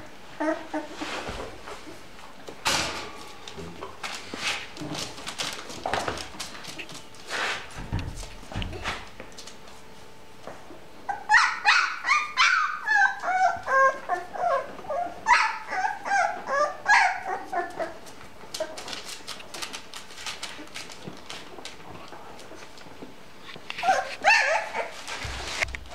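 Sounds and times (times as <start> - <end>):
puppy whimpering and yipping: 0.4 - 1.0, 11.1 - 18.0, 23.8 - 25.0
newspaper rustling underfoot: 23.6 - 25.9.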